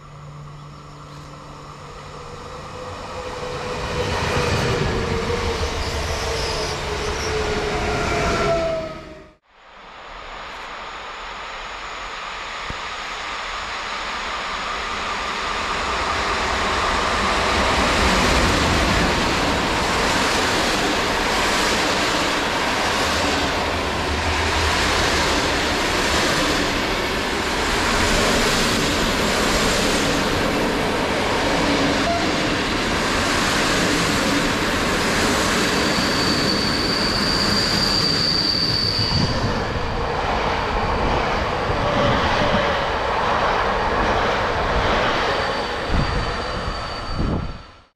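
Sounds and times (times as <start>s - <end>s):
train wheels rushing on rail: 0.0s - 9.4s, 10.4s - 47.8s
high-pitched wheel squeal: 5.0s - 9.3s, 35.8s - 39.8s, 45.2s - 47.9s.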